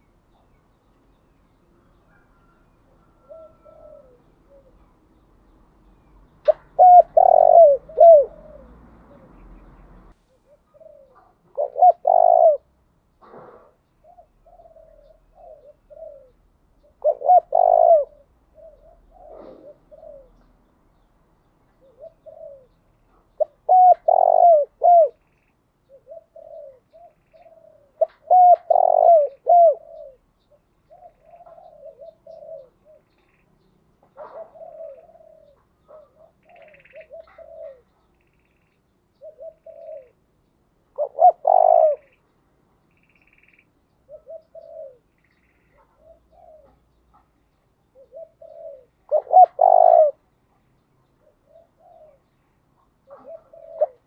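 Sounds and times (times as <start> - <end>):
faint high bird chirps: 0.0 - 12.4, 13.9 - 54.0
dove cooing: 1.8 - 5.0, 6.4 - 21.1, 21.7 - 42.3, 43.0 - 54.0.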